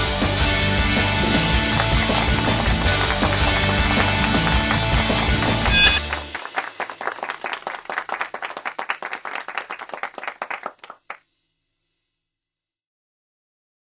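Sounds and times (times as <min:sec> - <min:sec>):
hands clapping in applause: 0:00.6 - 0:11.2.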